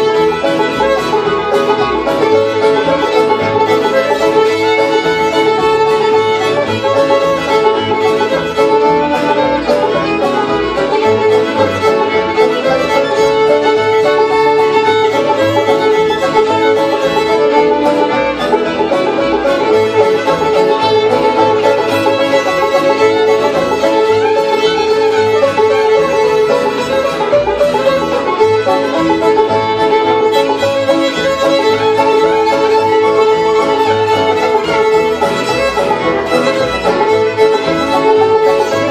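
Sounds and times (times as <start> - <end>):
fiddle melody: 0.0 - 38.9
plucked upright bass: 0.0 - 38.9.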